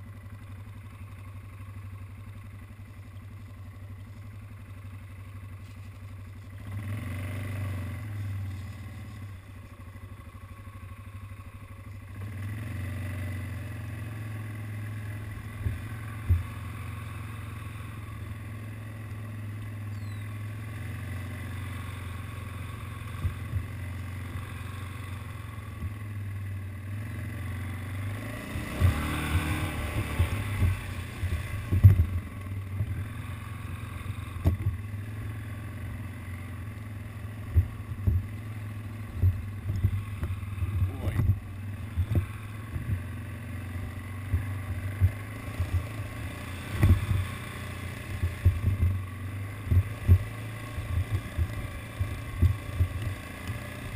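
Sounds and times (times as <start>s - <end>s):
quad bike engine running: 0.0s - 53.9s
sharp knocks and rattles: 28.7s - 33.0s, 34.2s - 35.0s, 37.4s - 43.3s, 44.2s - 53.2s.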